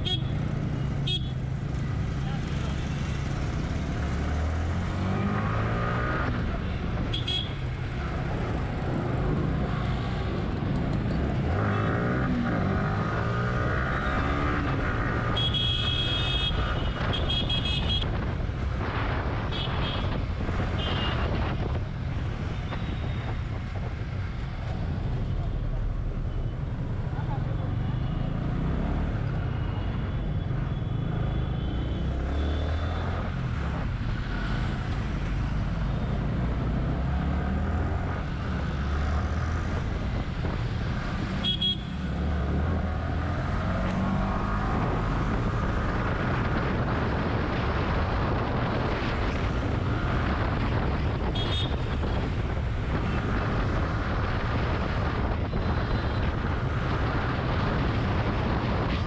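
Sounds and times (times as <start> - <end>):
road and traffic noise: 0.0 - 59.0.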